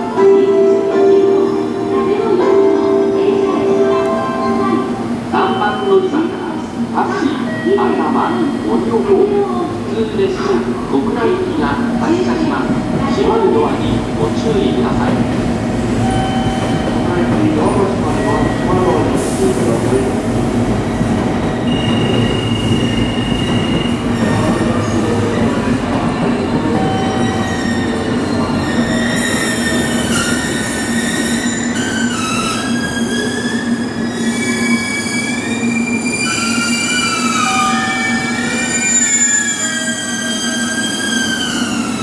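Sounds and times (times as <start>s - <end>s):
electric train rumbling: 0.0s - 42.0s
high squealing whining tones: 21.5s - 42.0s.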